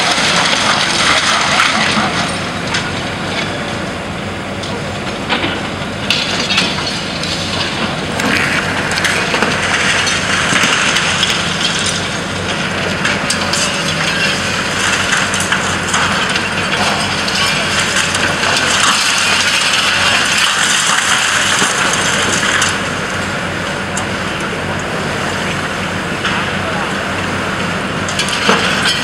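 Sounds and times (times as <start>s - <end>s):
machine engine running: 0.0s - 29.0s
excavator jaws crushing concrete: 5.3s - 22.8s.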